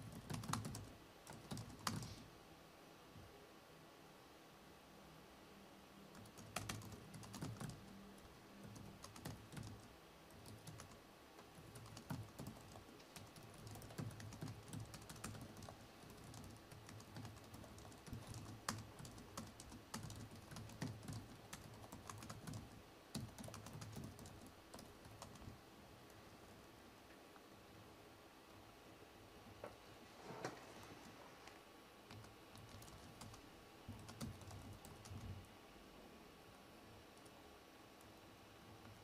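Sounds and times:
laptop keyboard typing: 0.0 - 2.2, 6.1 - 25.6, 32.1 - 35.4.

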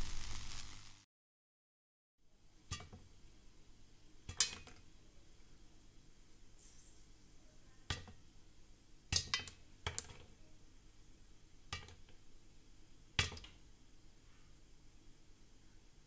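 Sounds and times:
popcorn popping in pot: 2.7 - 3.1, 4.2 - 4.9, 7.9 - 8.3, 9.1 - 10.4, 11.7 - 12.2, 13.1 - 13.6.

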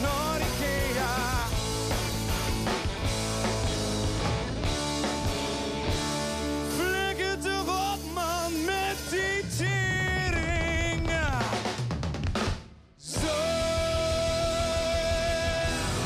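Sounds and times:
person singing: 0.0 - 1.6, 6.6 - 11.7, 13.0 - 16.0
electric guitar: 0.0 - 11.7, 13.1 - 16.0
bass guitar: 0.0 - 16.0
drum kit: 0.0 - 16.0.

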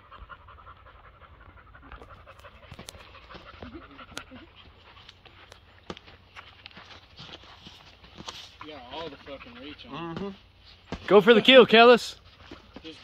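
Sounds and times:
faint rapid panting: 0.0 - 5.5, 7.0 - 10.9.

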